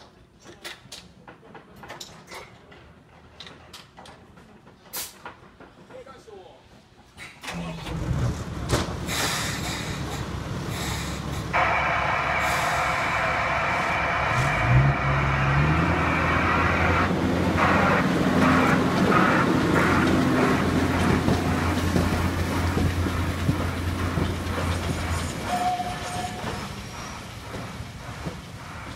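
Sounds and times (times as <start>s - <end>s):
wheels clicking over rail joints: 0.0s - 11.5s, 17.1s - 28.9s
diesel locomotive engine revving: 7.5s - 28.9s.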